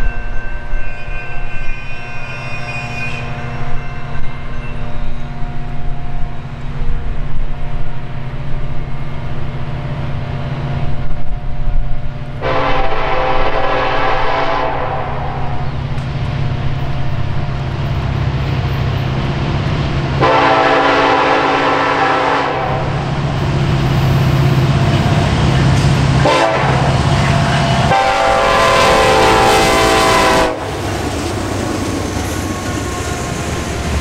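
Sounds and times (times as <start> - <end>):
train rumble: 0.0 - 34.0
locomotive horn: 12.4 - 15.6, 20.2 - 23.0, 26.1 - 30.9.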